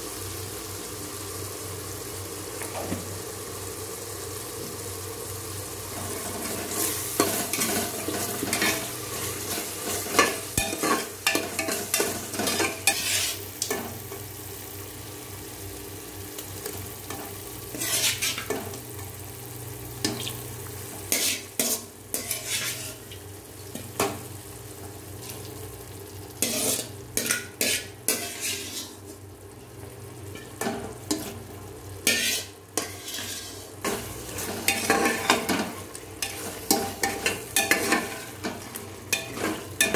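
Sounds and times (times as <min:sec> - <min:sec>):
metal ladle scraping a pot: 0:09.5 - 0:13.4, 0:17.7 - 0:18.5, 0:21.2 - 0:23.0, 0:26.4 - 0:29.0, 0:32.1 - 0:35.6.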